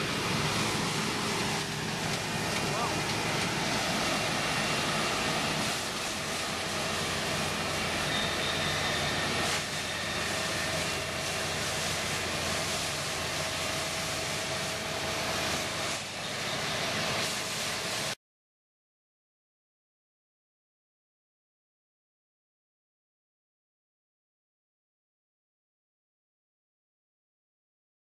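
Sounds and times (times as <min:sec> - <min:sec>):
combine harvester engine drone: 0:00.0 - 0:18.2.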